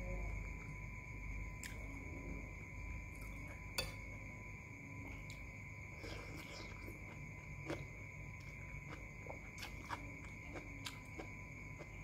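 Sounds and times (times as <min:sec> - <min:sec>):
chewing: 0:06.0 - 0:12.0.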